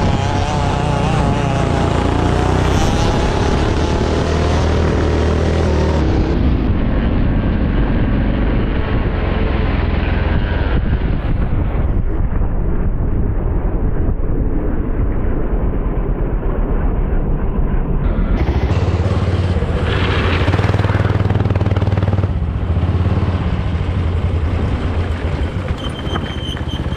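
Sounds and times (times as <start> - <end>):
kart engine running hard: 0.0 - 11.0, 18.0 - 26.9.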